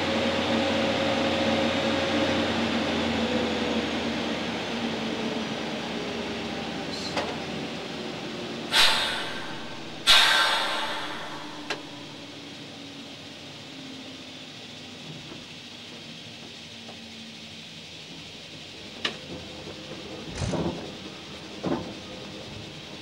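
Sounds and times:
locomotive machinery hum winding down: 0.0 - 23.0
loud air hisses: 8.7 - 12.9.

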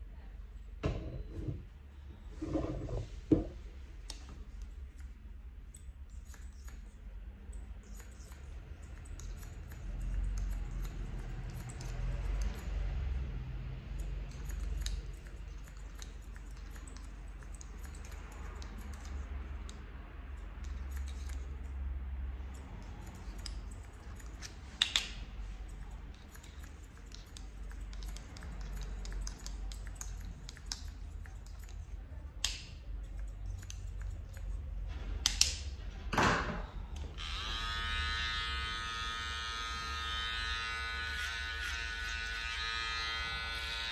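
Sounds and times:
scissors snipping hair: 4.0 - 35.6, 39.7 - 43.8
hair clipper buzzing: 37.2 - 43.9.

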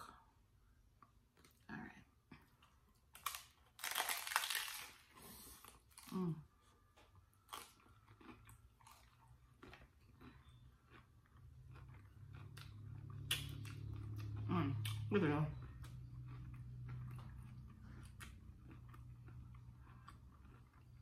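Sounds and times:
taco shell crunching: 3.1 - 6.2, 6.8 - 15.0, 15.6 - 21.0
chewing: 6.7 - 21.0.

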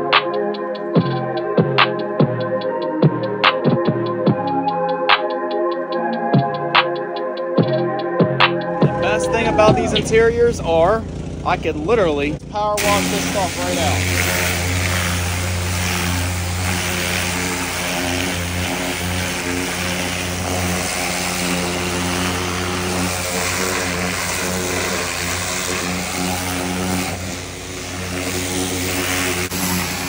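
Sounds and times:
pressure washer motor drone: 8.7 - 30.0
water jet hissing: 12.8 - 30.0.

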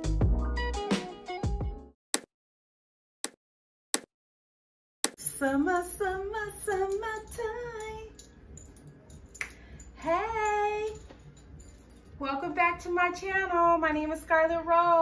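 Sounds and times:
woman singing: 5.2 - 8.2, 10.0 - 11.1, 12.2 - 15.0.

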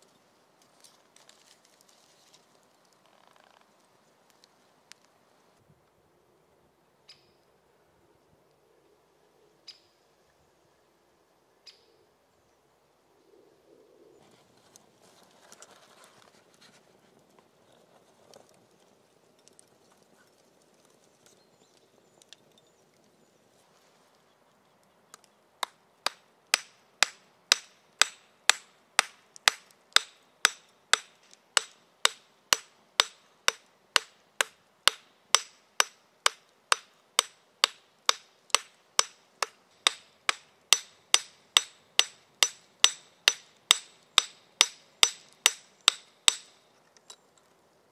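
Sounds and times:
faint handling sounds: 0.0 - 5.2, 14.2 - 24.8.

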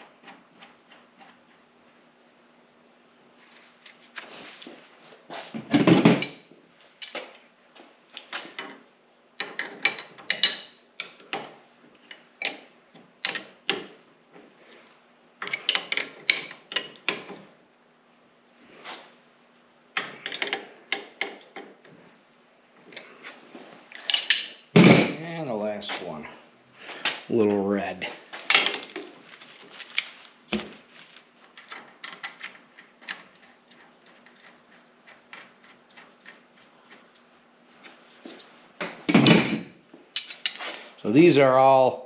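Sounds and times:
wrenches clinking on metal fittings: 40.2 - 40.7.

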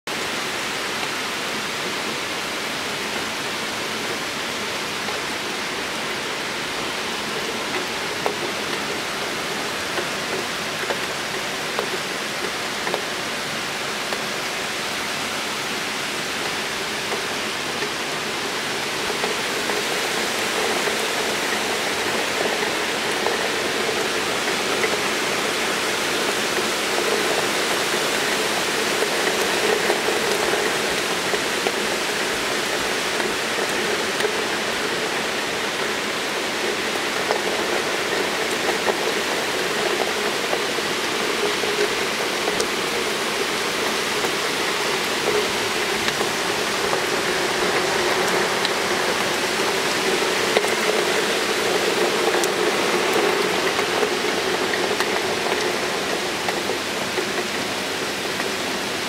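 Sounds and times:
heavy rain pouring: 0.1 - 59.0.

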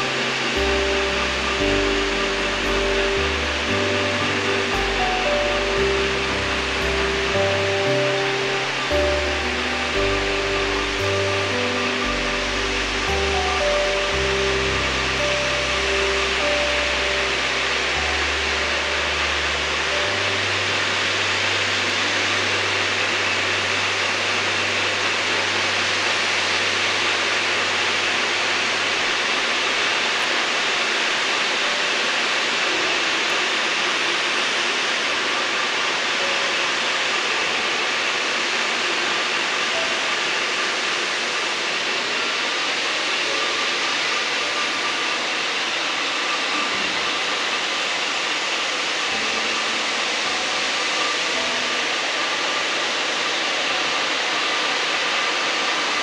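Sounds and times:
low hum: 0.0 - 30.6.

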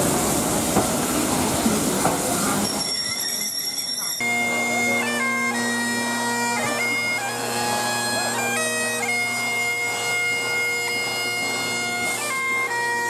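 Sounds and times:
bagpipes playing a tune: 2.8 - 13.0.

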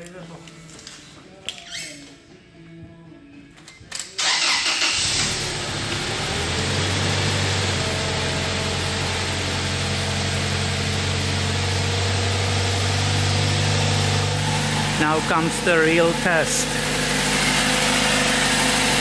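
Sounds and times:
car engine starting and idling: 4.1 - 19.0
air pump whine: 7.7 - 19.0.

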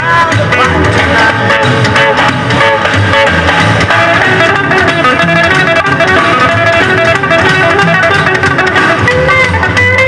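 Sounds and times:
guitar music with steady beat: 0.0 - 10.0.

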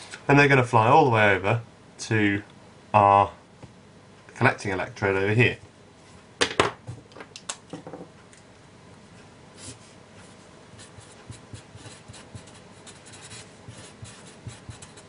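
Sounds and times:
marker writing on paper: 10.8 - 15.0.

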